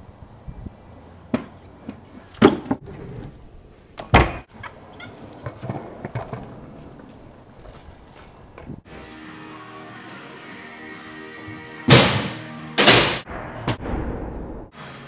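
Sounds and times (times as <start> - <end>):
scooter wheels rolling on concrete: 0.9 - 8.9.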